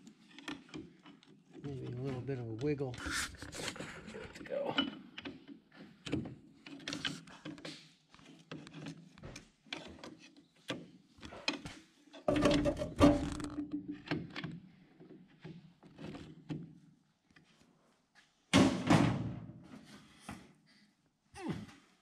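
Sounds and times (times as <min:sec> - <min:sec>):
metal clatter: 0:12.3 - 0:13.8.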